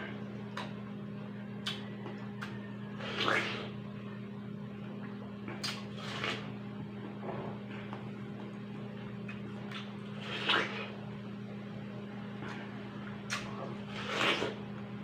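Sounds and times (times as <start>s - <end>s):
steady low hum: 0.0s - 15.0s
watermelon being bitten and chewed: 1.6s - 3.8s, 5.4s - 6.6s, 9.2s - 11.0s, 12.5s - 14.8s.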